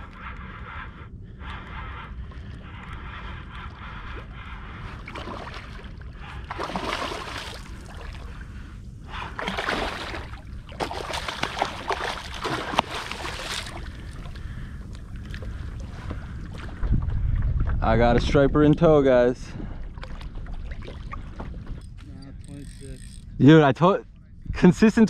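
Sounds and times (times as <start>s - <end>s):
steady low rumble: 0.0s - 25.0s
water splashing alongside kayak: 3.0s - 17.8s.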